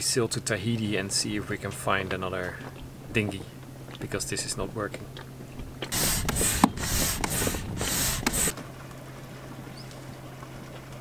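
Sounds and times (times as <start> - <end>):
hissing air bursts: 5.9 - 8.6.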